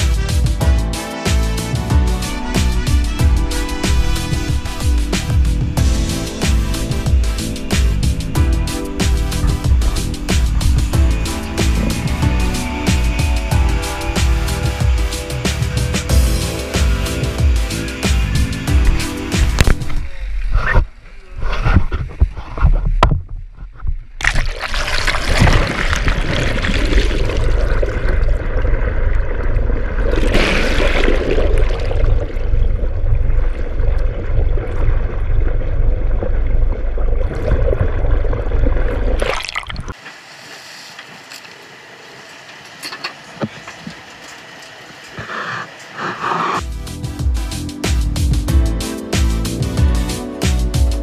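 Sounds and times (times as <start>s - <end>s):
water rushing over camera: 2.3s - 41.4s
on-deck noise: 2.4s - 24.6s, 26.9s - 46.6s
water splashing: 24.2s - 41.3s.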